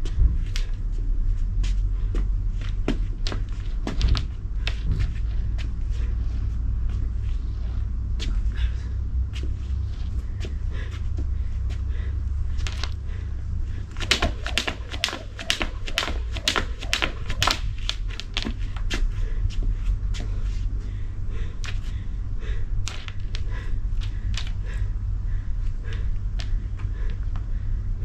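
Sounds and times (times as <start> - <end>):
steady low rumble: 0.0 - 28.0
skipping rope slapping the ground: 2.8 - 4.8, 12.6 - 13.0, 13.8 - 19.1, 22.8 - 24.6.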